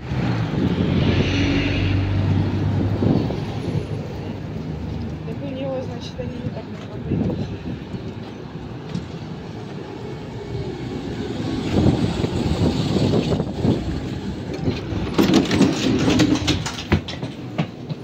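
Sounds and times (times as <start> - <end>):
trolleybus pulling up: 0.0 - 18.0
footsteps knocking on steps: 16.2 - 18.0.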